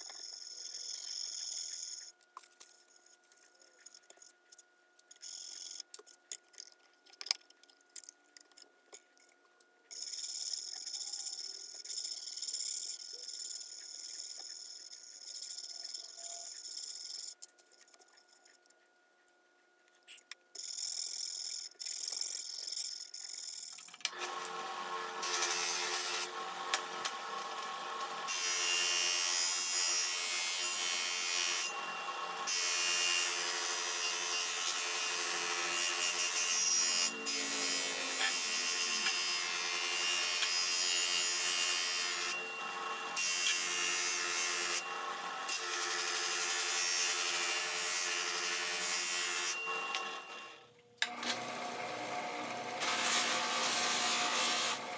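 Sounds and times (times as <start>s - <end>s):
grinding wheel rasping on blade: 0.0s - 2.2s, 9.9s - 17.4s, 20.6s - 50.4s, 52.4s - 54.9s
electric motor hum: 20.6s - 29.1s.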